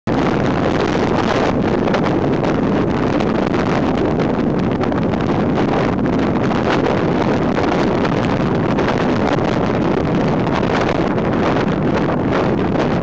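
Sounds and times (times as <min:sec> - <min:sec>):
wind rushing over microphone: 0:00.1 - 0:13.0.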